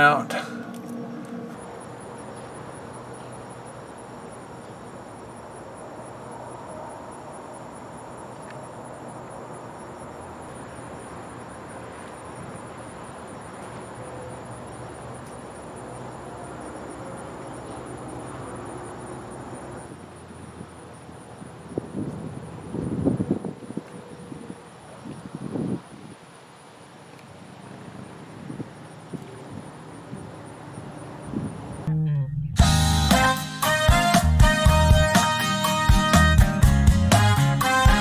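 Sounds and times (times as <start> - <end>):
insects trilling: 0.0 - 31.9
faint outdoor hiss: 0.0 - 38.0.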